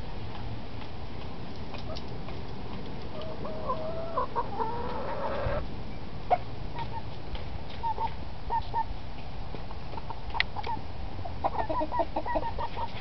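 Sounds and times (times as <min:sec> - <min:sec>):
hens clucking: 0:03.0 - 0:05.6, 0:09.9 - 0:13.0.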